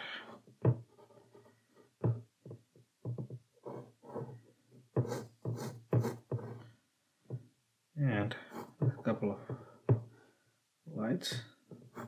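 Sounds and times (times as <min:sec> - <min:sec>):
pencil scratching on paper: 0:00.2 - 0:02.3, 0:03.0 - 0:06.7, 0:08.4 - 0:10.0, 0:11.7 - 0:12.0.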